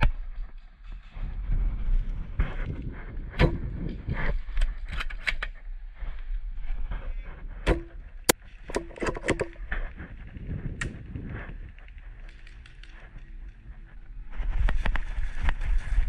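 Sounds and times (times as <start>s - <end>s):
steady low rumble: 9.4s - 16.0s.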